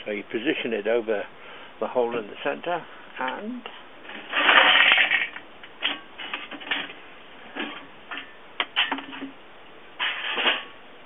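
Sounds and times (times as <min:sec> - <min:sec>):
coals clinking and rattling: 0:03.2 - 0:09.4, 0:10.0 - 0:10.8
charcoal clattering into grill: 0:04.0 - 0:09.4, 0:10.0 - 0:10.8.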